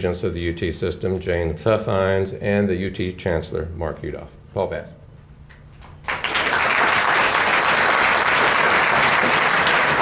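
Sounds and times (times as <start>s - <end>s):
audience applauding: 6.0s - 10.0s.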